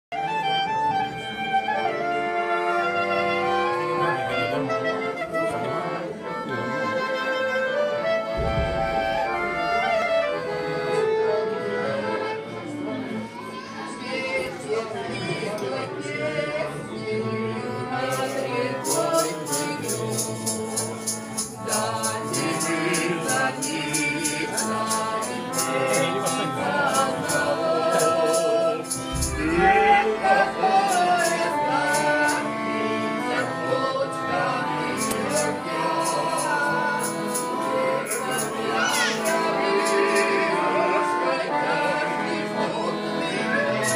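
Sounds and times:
piano accordion folk tune: 0:00.1 - 0:43.9
sharp rhythmic strikes: 0:08.2 - 0:10.6, 0:18.0 - 0:33.5, 0:35.0 - 0:40.4
people singing along: 0:14.0 - 0:43.9.

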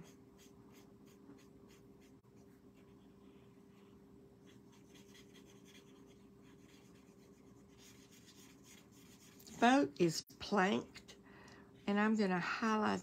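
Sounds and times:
marker scratching on cardstock: 0:00.0 - 0:03.0, 0:04.4 - 0:09.6
low steady hum: 0:00.0 - 0:13.0.

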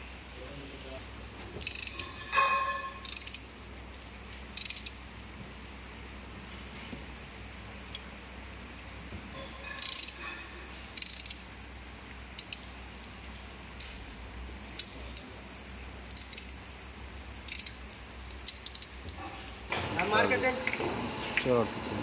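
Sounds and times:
ratchet wrench clicking: 0:01.6 - 0:02.0, 0:03.0 - 0:03.4, 0:04.6 - 0:05.0, 0:09.8 - 0:10.2, 0:11.0 - 0:11.4, 0:12.3 - 0:12.6, 0:16.1 - 0:16.5, 0:17.4 - 0:17.8, 0:18.4 - 0:18.9.

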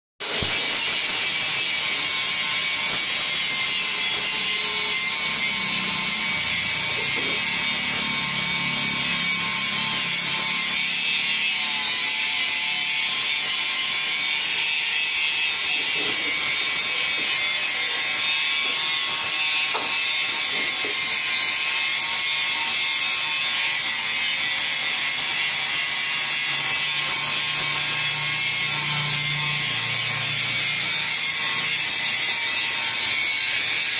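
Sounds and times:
arc welding hiss: 0:00.2 - 0:08.3.

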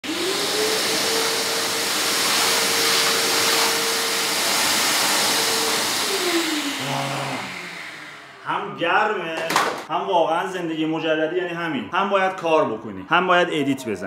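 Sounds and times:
vacuum cleaner running: 0:00.0 - 0:09.8.

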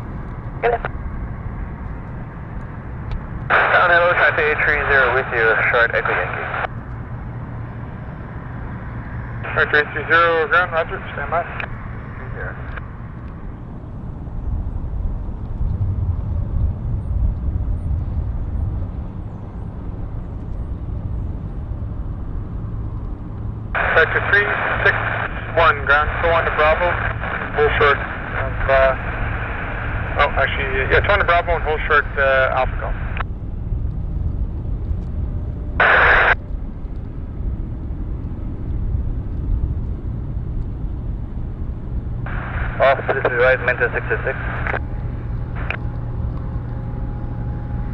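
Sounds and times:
distant jet engines rumbling: 0:00.0 - 0:47.9
radio squelch static: 0:00.6 - 0:00.9, 0:03.5 - 0:06.7, 0:09.4 - 0:12.9, 0:23.8 - 0:33.2, 0:35.8 - 0:36.4, 0:42.2 - 0:46.0.

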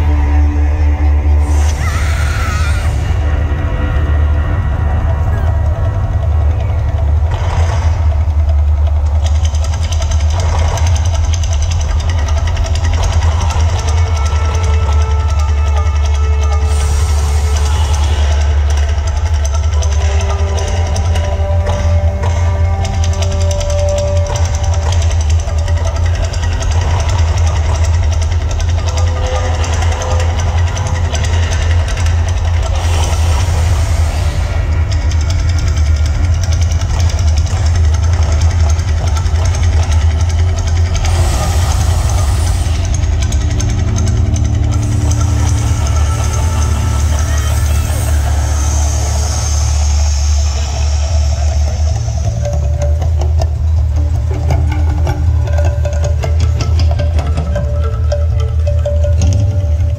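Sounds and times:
deep bass rumble: 0:00.0 - 0:59.9
drum-heavy music: 0:00.0 - 0:59.9
hiss: 0:01.4 - 0:03.3, 0:16.6 - 0:18.9, 0:32.6 - 0:36.6, 0:40.7 - 0:43.4, 0:44.8 - 0:52.5.

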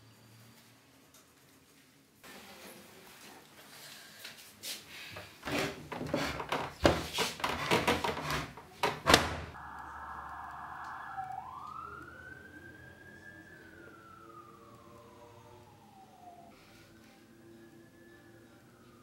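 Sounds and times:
siren wailing: 0:09.5 - 0:19.0.

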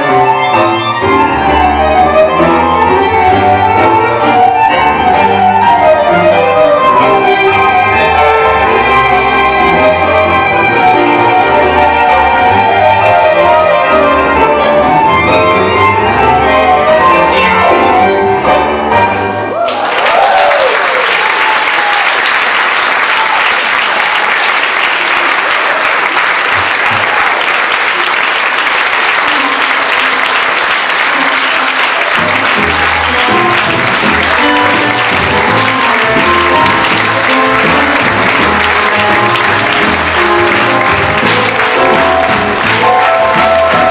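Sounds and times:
music playing: 0:00.0 - 0:19.6, 0:27.9 - 0:43.9
audience applauding: 0:19.5 - 0:43.9.

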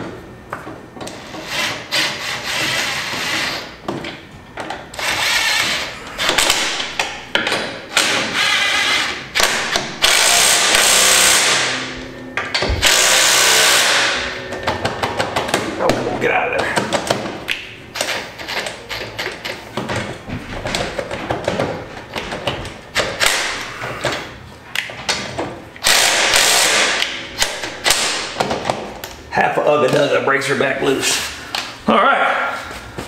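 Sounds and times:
impact wrench bursts: 0:05.0 - 0:07.1, 0:07.9 - 0:11.9, 0:12.6 - 0:14.4, 0:25.8 - 0:28.4.

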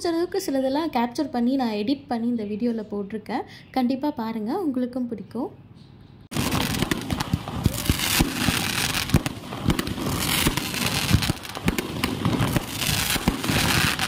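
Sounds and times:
fireworks bangs and pops: 0:06.3 - 0:14.0
fireworks crackling: 0:06.3 - 0:14.0.

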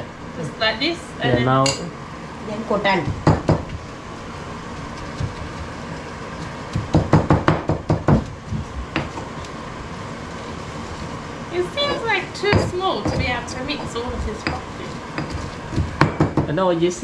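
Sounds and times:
pestle knocking in a mortar: 0:03.1 - 0:03.7, 0:06.7 - 0:09.3, 0:12.5 - 0:16.5.

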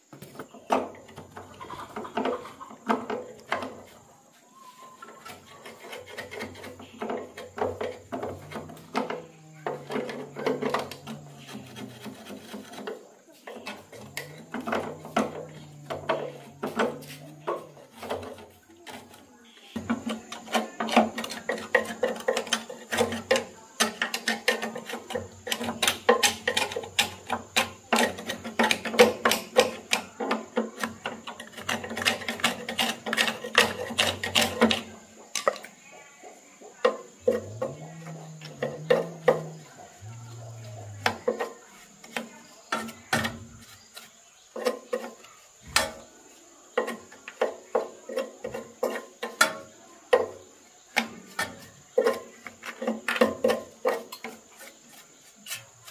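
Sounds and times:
hand tool scraping sheet steel: 0:05.2 - 0:09.2, 0:09.8 - 0:19.3, 0:19.9 - 0:34.9.

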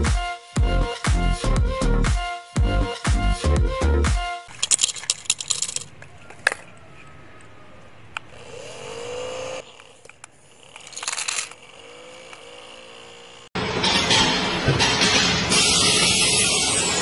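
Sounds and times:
small electric motor whine: 0:08.3 - 0:13.6.

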